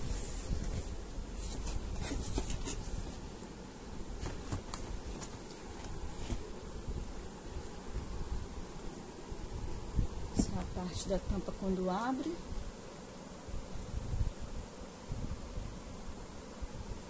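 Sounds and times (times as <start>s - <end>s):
cardboard box being opened: 0.1s - 3.3s, 4.2s - 6.4s.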